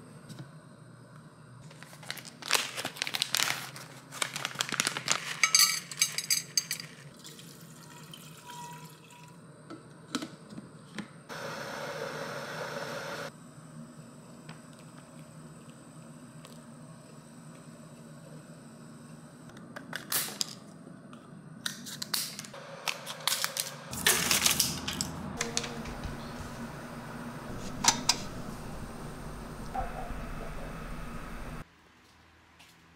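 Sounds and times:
metal clinking and rattling: 0:05.3 - 0:07.0.

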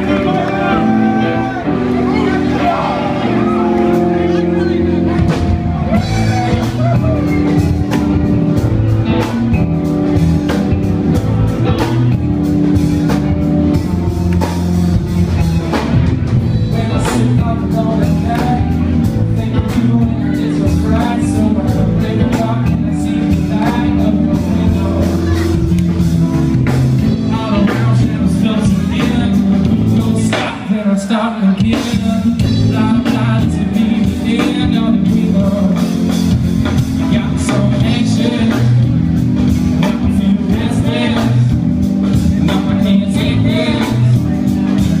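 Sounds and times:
live rock band playing: 0:00.0 - 0:45.0.

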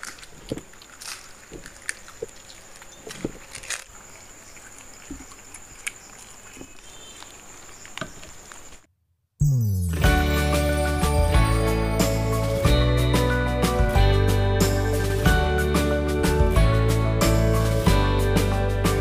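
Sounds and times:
crunching and chewing: 0:00.0 - 0:08.8
jingly music: 0:09.4 - 0:19.0.

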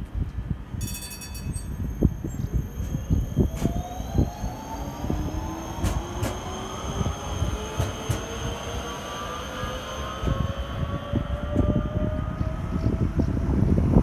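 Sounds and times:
low rumble: 0:01.6 - 0:14.0
train motors whining: 0:02.1 - 0:13.0.

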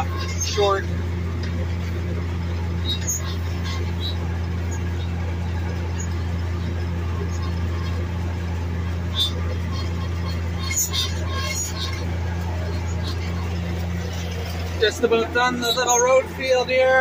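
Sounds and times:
tractor engine droning: 0:00.0 - 0:17.0.

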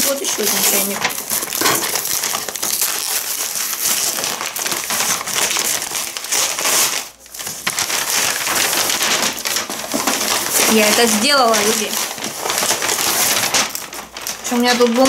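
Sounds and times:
paper crumpling and rustling: 0:00.0 - 0:15.0.

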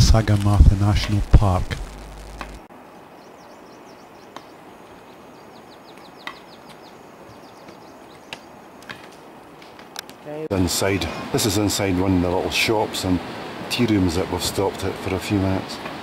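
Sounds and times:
faint outdoor ambience: 0:00.0 - 0:16.0
small bird chirping: 0:02.8 - 0:08.8.

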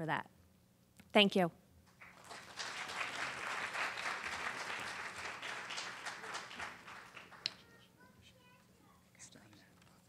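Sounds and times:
audience applauding: 0:02.0 - 0:07.8.

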